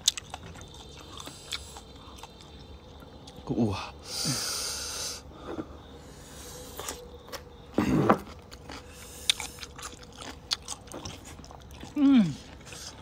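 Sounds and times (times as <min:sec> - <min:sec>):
chewing: 0:00.0 - 0:03.5, 0:06.3 - 0:13.0.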